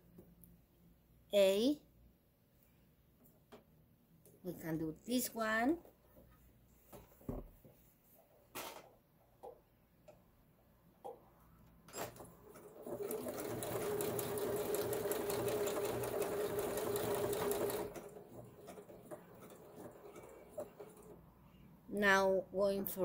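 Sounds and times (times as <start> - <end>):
sewing machine stitching: 11.9 - 21.2.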